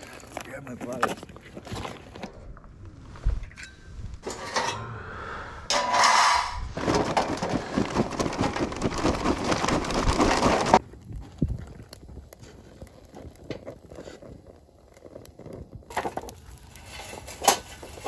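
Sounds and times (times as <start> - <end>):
charcoal clattering into metal chimney: 4.2 - 4.8, 5.7 - 10.8, 15.9 - 18.0.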